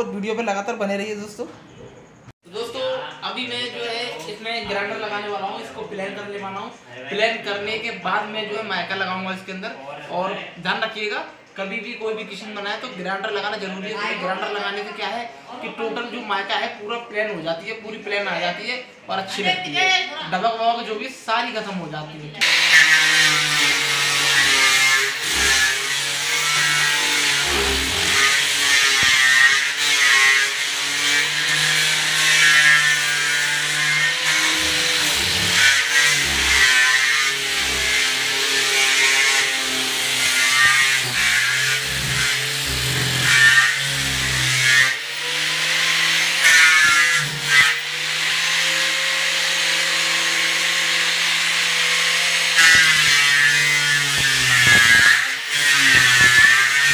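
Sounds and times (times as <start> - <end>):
angle grinder motor humming: 22.4 - 56.9
sanding disc rasping on wood: 22.4 - 56.9.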